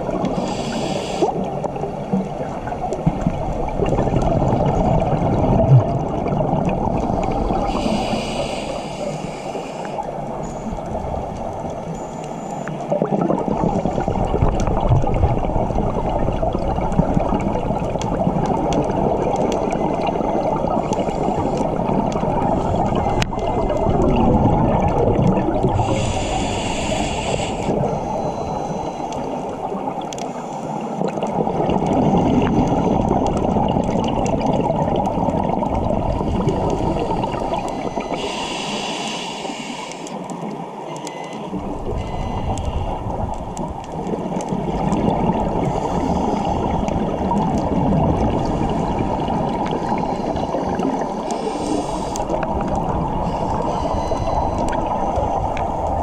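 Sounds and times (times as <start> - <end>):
exhaled bubbles underwater: 0.0 - 56.0
regulator inhalation hiss: 0.4 - 1.4, 7.6 - 10.1, 25.8 - 29.1, 36.7 - 40.2, 50.0 - 52.4.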